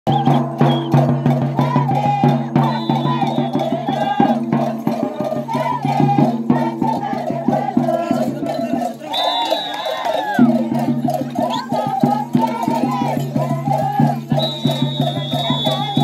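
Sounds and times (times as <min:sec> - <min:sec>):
folk band music: 0:09.0 - 0:16.0.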